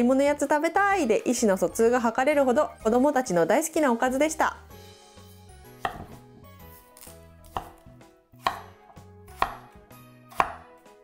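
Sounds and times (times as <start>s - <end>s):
faint background music: 0.0s - 11.0s
knife chopping on cutting board: 5.7s - 10.8s.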